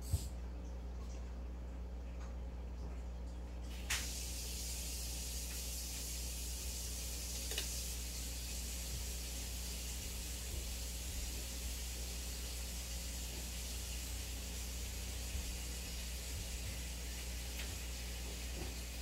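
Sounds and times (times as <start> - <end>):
aquarium air pump hum: 0.0 - 19.0.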